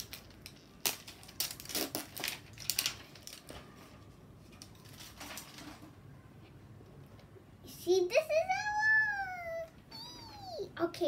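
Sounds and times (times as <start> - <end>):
plastic packaging crinkling: 0.0 - 5.9.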